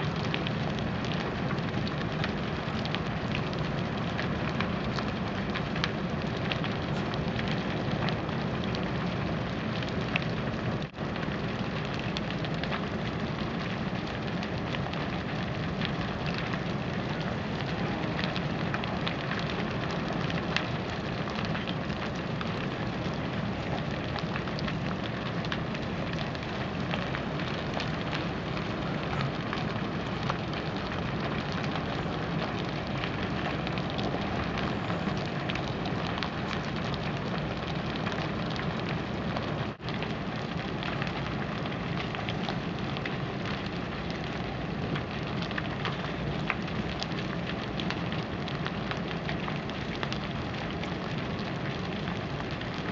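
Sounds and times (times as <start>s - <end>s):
burning timber crackling: 0.0s - 52.9s
rush of flame: 0.0s - 52.9s.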